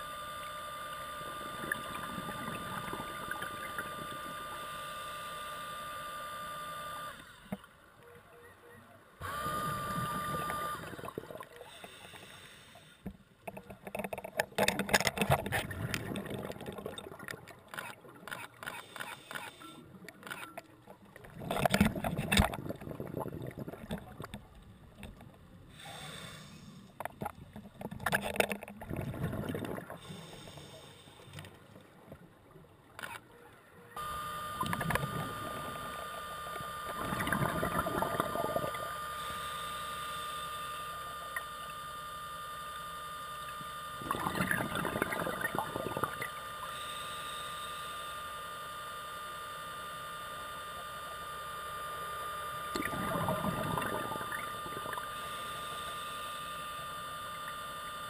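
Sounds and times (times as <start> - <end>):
motor whine and hum: 0.0 - 29.2, 29.8 - 58.0
underwater bubbling bursts: 1.3 - 4.2, 13.7 - 18.3, 20.9 - 25.2, 27.0 - 30.4, 34.6 - 39.1, 44.0 - 46.4, 52.7 - 55.8.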